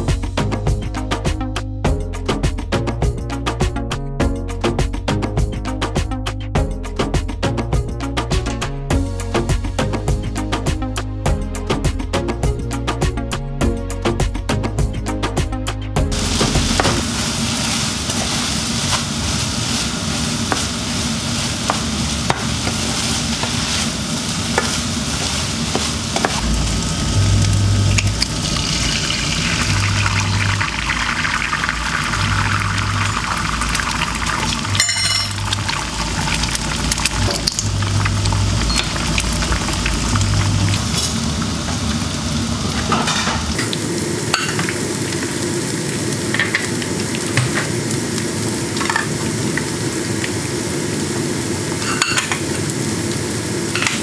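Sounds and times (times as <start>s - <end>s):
egg sizzling in a frying pan: 16.1s - 54.0s
rice sizzling in a pan: 16.1s - 54.0s.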